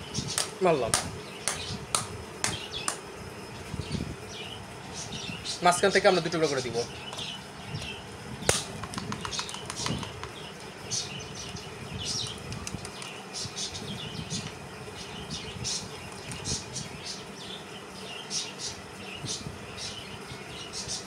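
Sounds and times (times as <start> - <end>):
sharp click: 8.5 - 10.3.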